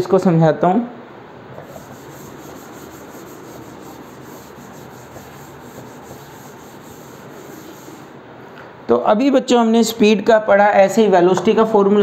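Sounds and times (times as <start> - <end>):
duster rubbing on chalkboard: 1.6 - 8.2.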